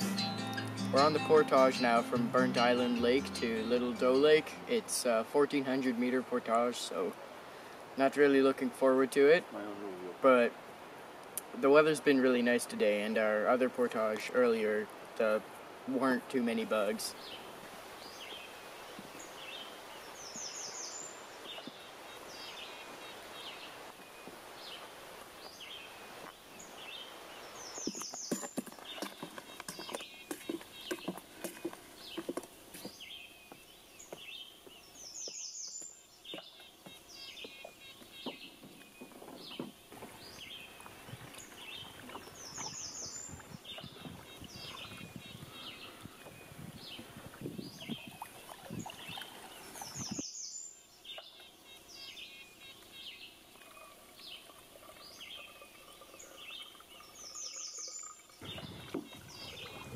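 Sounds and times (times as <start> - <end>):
bird song: 0.0 - 7.1, 16.4 - 59.9
water sounds: 0.6 - 33.0, 36.2 - 50.2, 51.1 - 59.9
bird chirps: 26.6 - 59.9
quiet knocks: 36.3 - 40.2.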